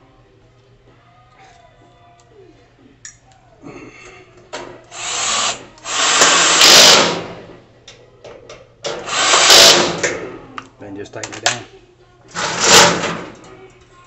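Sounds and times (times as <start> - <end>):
power drill driving screw: 5.0 - 7.4, 8.9 - 10.0.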